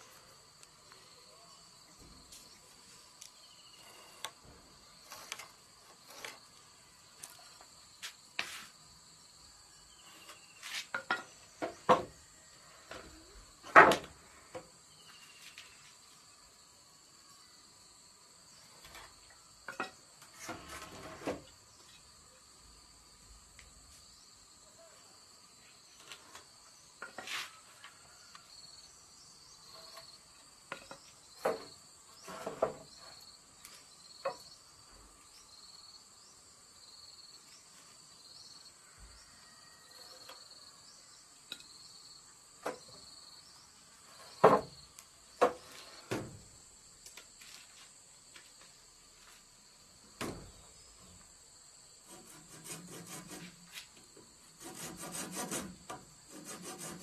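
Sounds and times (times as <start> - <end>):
high insect drone: 0.0 - 57.0
insect chirping: 0.0 - 57.0
wooden boards knocking on concrete: 44.3 - 44.8, 45.4 - 46.4.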